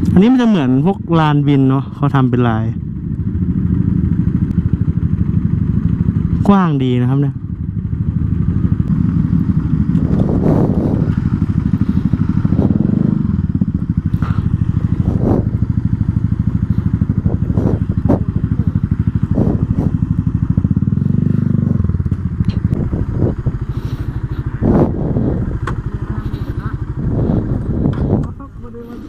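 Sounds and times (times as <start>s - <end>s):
motorcycle engine running: 0.0s - 29.0s.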